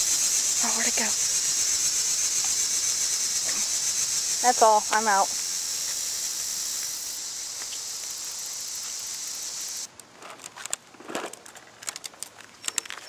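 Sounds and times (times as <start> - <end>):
high-pitched insect chorus: 0.0 - 9.9.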